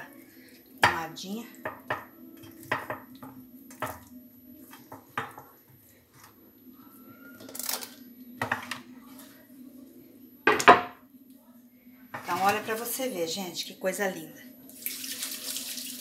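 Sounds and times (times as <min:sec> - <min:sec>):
glass dish knocking on countertop: 0:02.7 - 0:04.0, 0:10.5 - 0:11.0.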